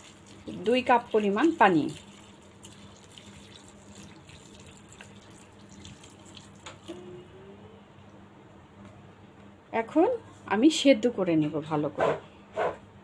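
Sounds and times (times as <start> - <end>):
water pouring into a pan: 0.0 - 7.0
water splashing over vegetables: 0.0 - 7.1.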